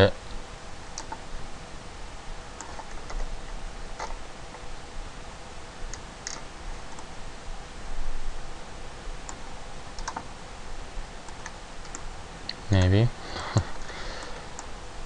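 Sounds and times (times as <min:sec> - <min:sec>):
faint computer hum: 0:00.0 - 0:15.0
mouse and keyboard clicks: 0:01.0 - 0:01.2, 0:05.9 - 0:07.1, 0:10.0 - 0:10.3.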